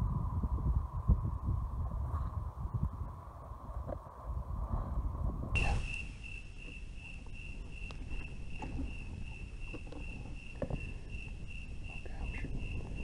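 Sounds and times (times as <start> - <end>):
cricket chirping: 5.6 - 13.0.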